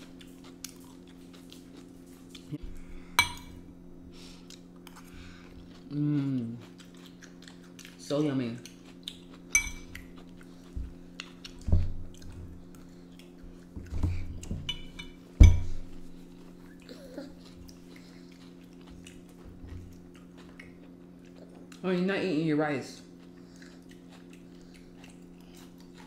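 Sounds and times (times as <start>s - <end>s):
chewing: 0.0s - 2.6s, 4.4s - 13.8s, 15.8s - 21.9s, 22.9s - 26.0s
steady low hum: 0.0s - 26.0s.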